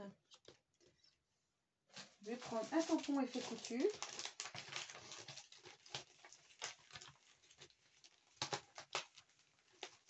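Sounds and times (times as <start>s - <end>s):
plastic sheets clicking and tapping: 2.0s - 10.0s.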